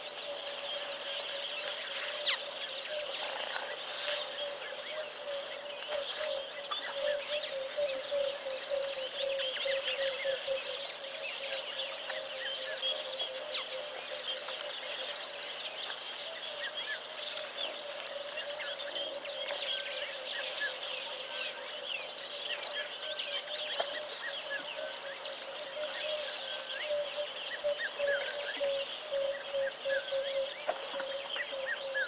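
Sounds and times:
birds chirping and whistling: 0.0s - 32.0s.

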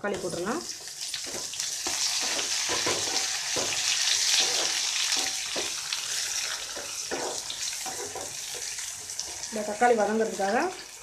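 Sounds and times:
vegetables sizzling in hot oil: 0.0s - 11.0s
wooden spatula scraping pan: 1.3s - 5.7s.

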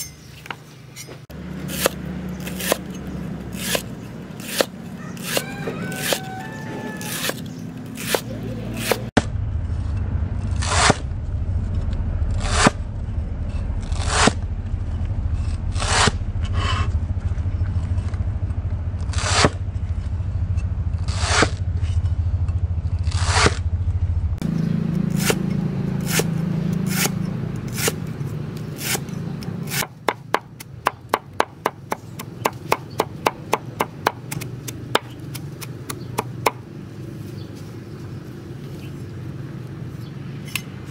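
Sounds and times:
low steady rumble: 1.0s - 40.9s
cleaver chopping on wooden block: 1.6s - 6.3s, 7.0s - 9.1s, 28.7s - 36.6s.

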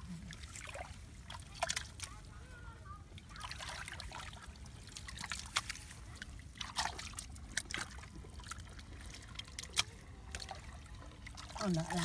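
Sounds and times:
shallow water sloshing and trickling: 0.0s - 12.0s
short irregular splashes: 3.2s - 12.0s.

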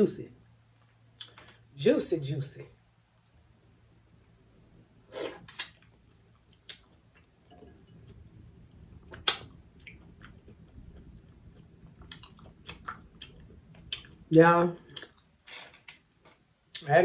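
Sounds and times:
wet smacks and clicks eating: 1.2s - 1.6s, 5.4s - 16.9s
soft chewing: 5.2s - 16.9s.

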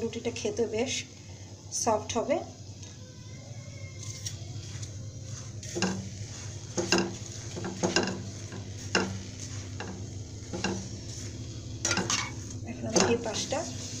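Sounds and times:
light frying sizzle: 0.0s - 14.0s
spatula scraping frying pan: 4.6s - 14.0s.

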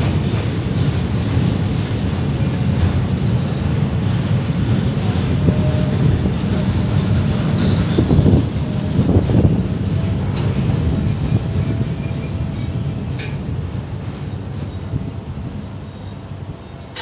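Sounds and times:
freight wagons rumbling on rails: 0.0s - 17.0s
high wheel squeal: 5.2s - 9.1s.

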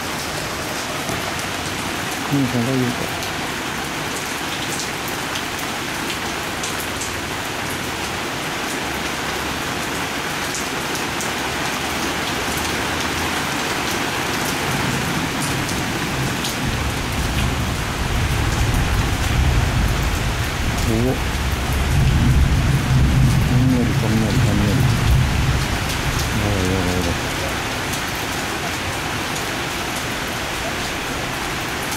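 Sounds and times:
heavy rain pouring: 0.0s - 31.9s
low thunder rumble: 16.2s - 26.4s.

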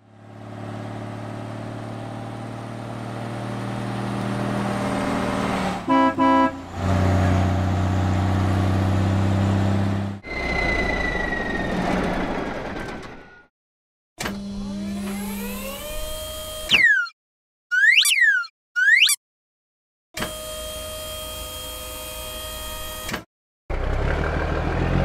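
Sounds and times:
truck horn toots: 5.8s - 7.4s
falling whistle: 10.2s - 12.1s, 16.7s - 19.2s.

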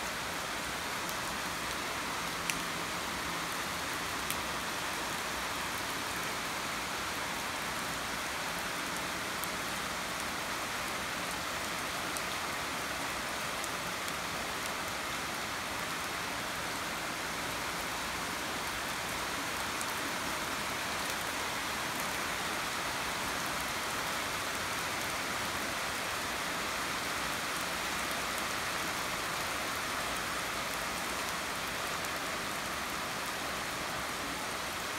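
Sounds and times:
steady rain on leaves: 0.0s - 34.9s
faint raindrop ticks: 1.0s - 2.7s.

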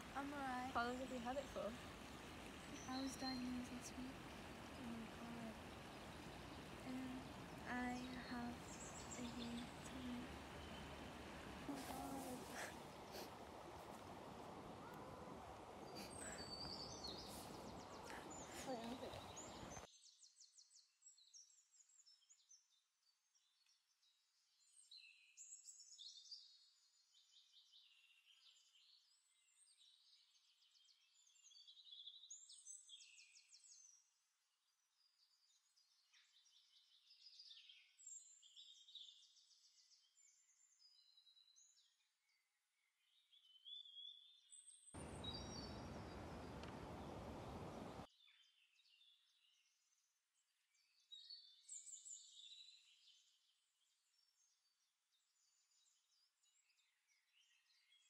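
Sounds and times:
birds chirping and trilling: 0.0s - 14.1s, 14.7s - 21.4s, 43.1s - 49.5s.

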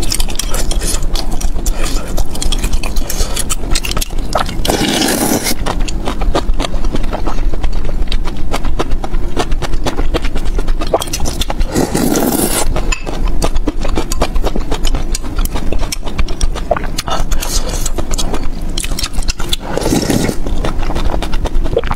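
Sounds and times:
wet chewing and mouth clicks: 0.0s - 21.9s
loud slurps: 4.6s - 5.6s, 10.9s - 12.7s, 19.5s - 20.4s.

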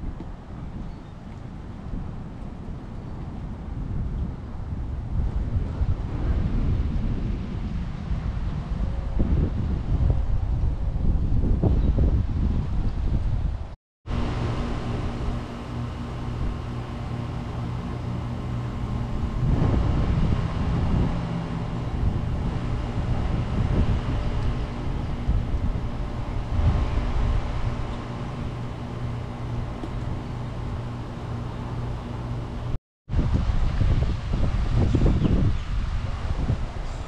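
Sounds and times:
wind on microphone: 0.0s - 37.0s
air conditioner compressor hum: 14.1s - 37.0s.

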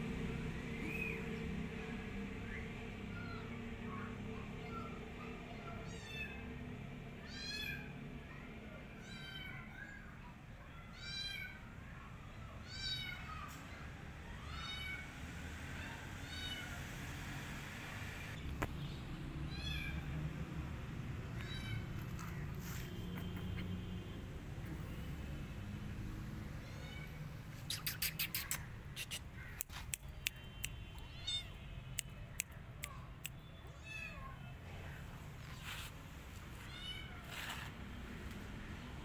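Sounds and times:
kitten meowing: 12.6s - 13.5s, 14.4s - 15.0s, 19.5s - 20.1s, 21.3s - 22.1s, 26.6s - 29.6s, 31.0s - 31.6s, 36.6s - 37.4s.

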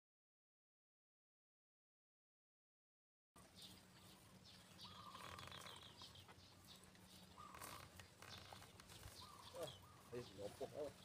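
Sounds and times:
faint birds chirping: 3.4s - 11.0s
low steady hum: 3.4s - 11.0s.

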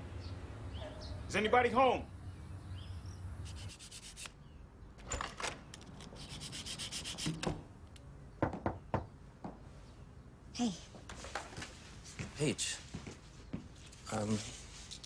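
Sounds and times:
scratchy rubbing and scraping: 3.5s - 4.3s, 6.1s - 7.4s
sharp knocks: 8.4s - 9.6s.

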